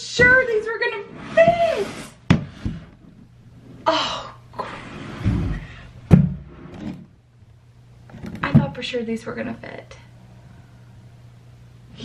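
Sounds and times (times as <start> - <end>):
fabric bin scraping on shelf: 0.2 - 3.8, 4.6 - 7.1.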